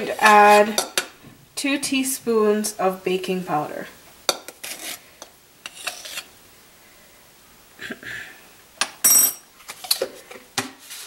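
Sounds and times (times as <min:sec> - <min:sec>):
metallic clink: 0:09.0 - 0:09.4.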